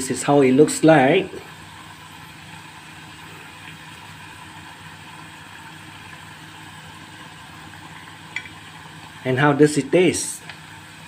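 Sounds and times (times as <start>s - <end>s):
hot oil sizzling and bubbling: 0.0s - 11.0s.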